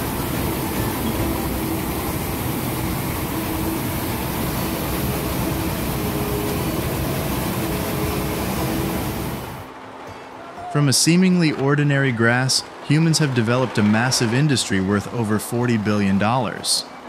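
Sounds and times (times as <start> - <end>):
mill machinery din: 0.0 - 9.7
faint constant hums: 0.0 - 17.0.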